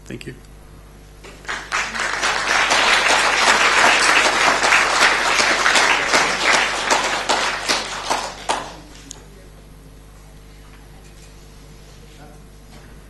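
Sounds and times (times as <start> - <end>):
audience applauding: 1.2 - 9.1.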